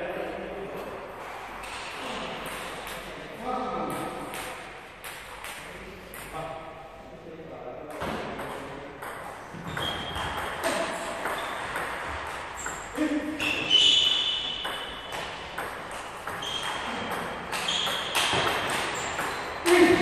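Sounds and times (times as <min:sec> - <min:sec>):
shoes squeaking on floor: 0:09.5 - 0:20.0.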